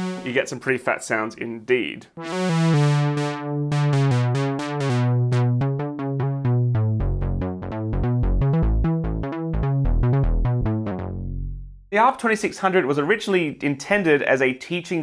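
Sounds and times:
bright synthesizer notes: 0.0s - 0.4s, 2.2s - 11.7s
deep low synth pulse: 2.2s - 11.9s.

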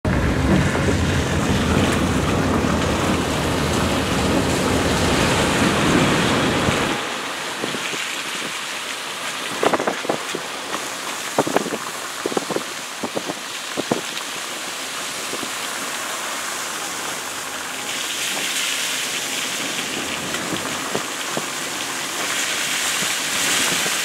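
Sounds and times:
wind rushing over microphone: 0.0s - 14.2s
road rumble: 0.0s - 24.0s.

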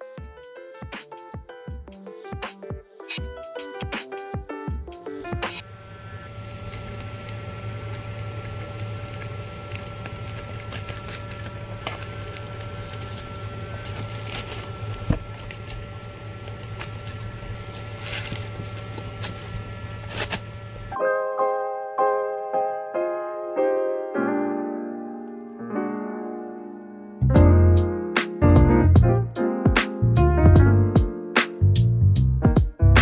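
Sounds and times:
steady low hum: 5.3s - 21.0s
plastic packaging crinkling: 5.8s - 21.0s.

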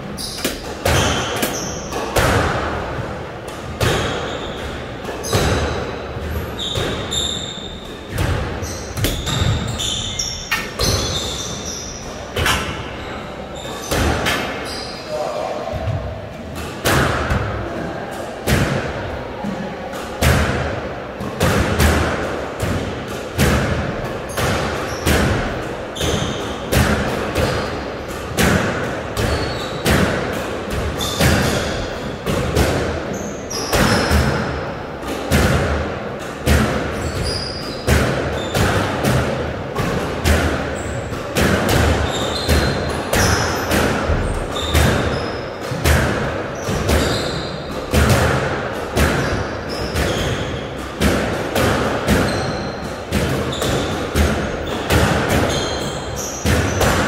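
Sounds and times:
squash ball hitting rackets and walls: 0.0s - 14.9s, 15.7s - 57.0s
shoes squeaking on wooden floor: 4.0s - 12.2s, 46.6s - 47.7s.

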